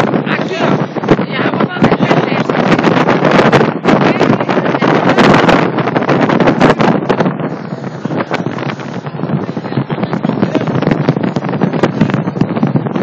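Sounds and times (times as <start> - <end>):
boat engine rushing: 0.0 - 13.0
water rushing: 0.0 - 13.0
wind buffeting microphone: 0.0 - 13.0.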